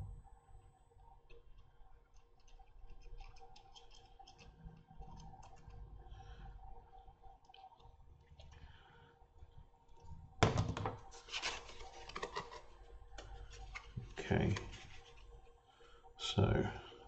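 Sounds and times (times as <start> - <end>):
handling clicks and ticks: 1.1 - 5.8.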